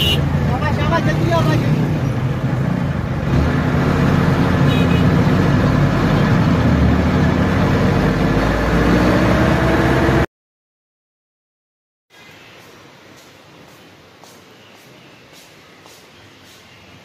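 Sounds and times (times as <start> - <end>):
bus engine: 0.0 - 10.3
road noise: 0.0 - 10.3, 12.1 - 17.0.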